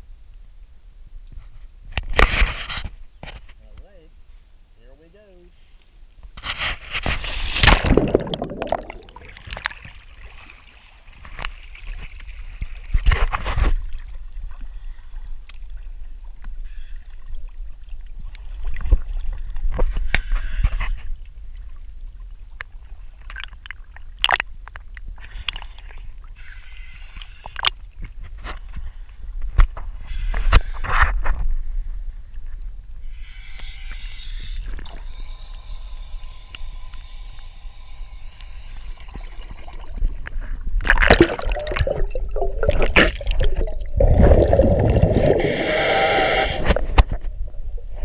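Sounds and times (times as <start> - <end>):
water sloshing and gurgling: 6.3 - 26.4, 38.7 - 48.0
short splashes: 7.1 - 11.3, 40.8 - 45.4
loud splash into water: 7.5 - 9.6, 40.8 - 45.4.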